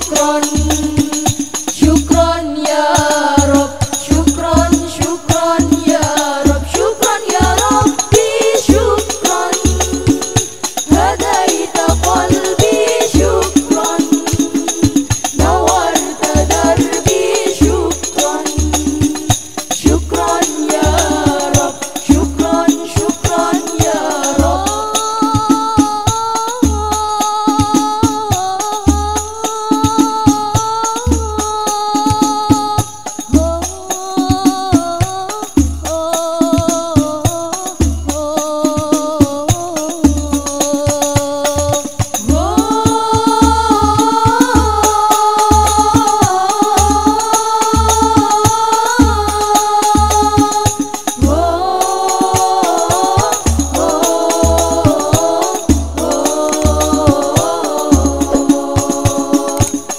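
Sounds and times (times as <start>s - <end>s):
women singing devotional song: 0.0s - 59.9s
deep drum beat: 3.4s - 27.0s, 41.6s - 59.9s.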